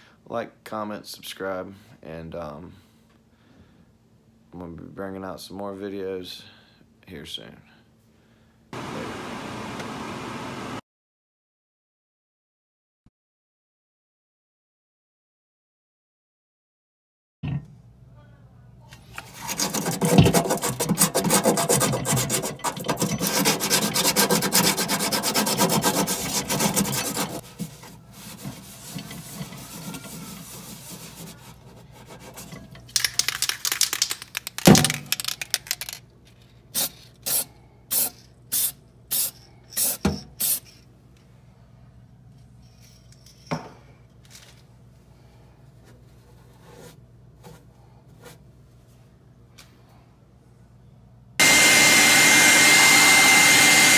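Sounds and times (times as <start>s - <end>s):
sandpaper rubbing on metal: 19.2s - 32.6s.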